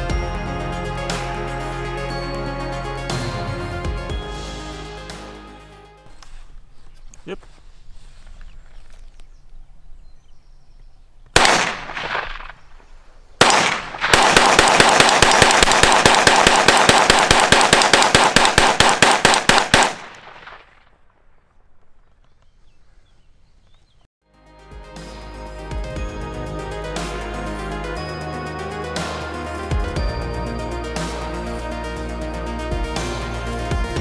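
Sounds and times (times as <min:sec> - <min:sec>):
rifle shots: 0:11.4 - 0:21.5.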